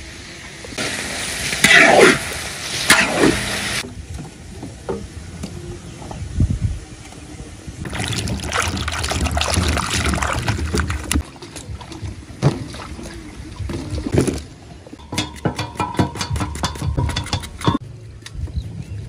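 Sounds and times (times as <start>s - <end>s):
hands splashing water in a bowl: 7.9s - 11.9s
water dripping: 7.9s - 14.1s.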